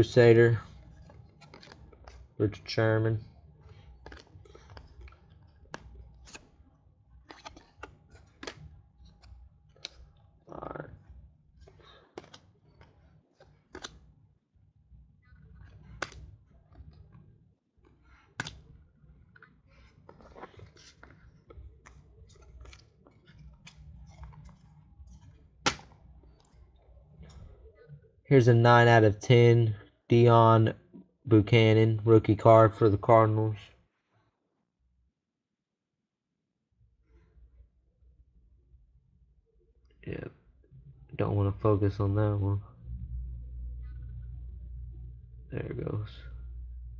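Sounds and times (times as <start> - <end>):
trading cards clicking and rustling: 0.0 - 6.6, 7.2 - 10.6, 11.6 - 14.1, 15.3 - 17.2, 17.9 - 26.6
low steady hum: 0.0 - 13.0, 37.4 - 46.9.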